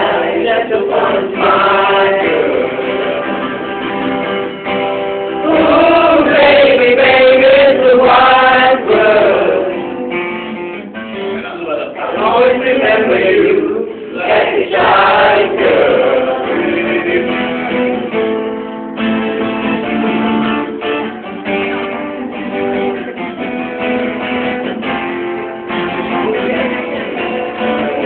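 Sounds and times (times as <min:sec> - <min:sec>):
person singing: 0:00.0 - 0:03.6, 0:05.4 - 0:09.9
acoustic guitar playing: 0:00.0 - 0:28.0.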